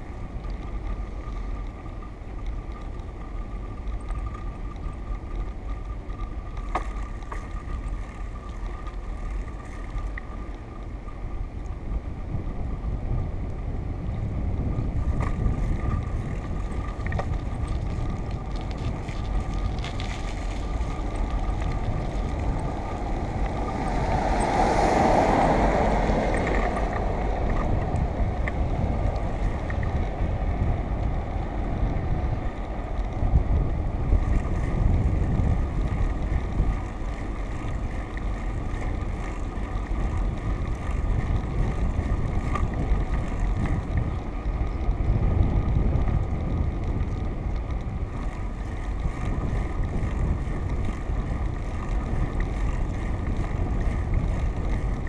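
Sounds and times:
wind rumble on microphone: 0:00.0 - 0:55.0.

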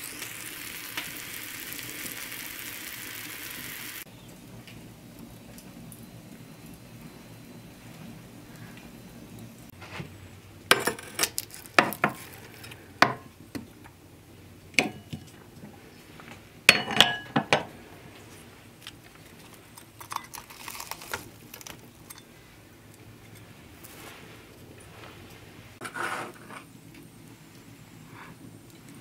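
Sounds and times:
metal utensils clinking on pan: 0:14.8 - 0:15.3, 0:16.7 - 0:17.7, 0:22.0 - 0:22.3
soft scraping: 0:23.4 - 0:26.7.

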